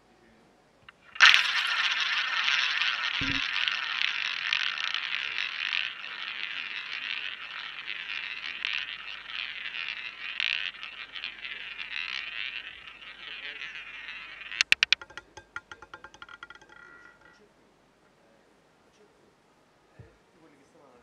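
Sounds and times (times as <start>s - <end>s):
roulette ball rolling on wheel: 0.8s - 17.5s.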